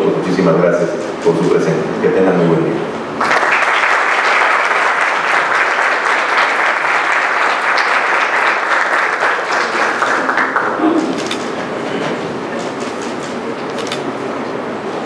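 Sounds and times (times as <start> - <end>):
audience applauding: 3.2 - 11.4.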